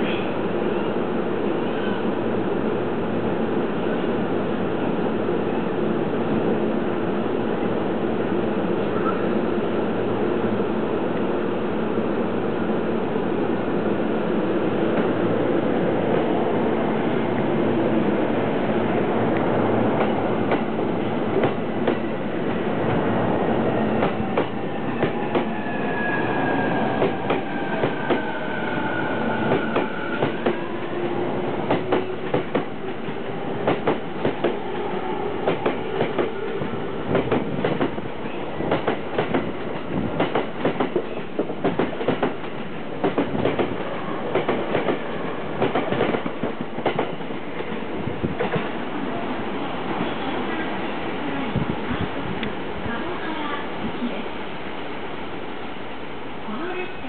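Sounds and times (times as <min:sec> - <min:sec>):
train wheels clacking over rail joints: 0:38.7 - 0:47.2.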